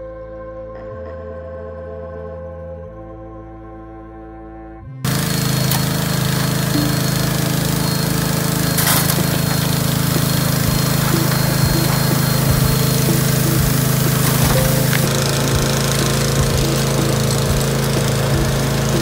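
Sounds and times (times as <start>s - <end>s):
small engine running: 5.0s - 19.0s
water rushing through sluice: 5.1s - 19.0s
water spraying: 5.1s - 19.0s.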